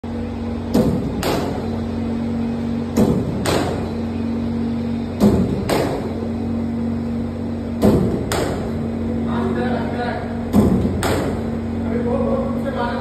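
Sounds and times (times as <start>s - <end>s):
steady hum: 0.0s - 13.0s
cricket bat striking ball: 3.0s - 3.9s.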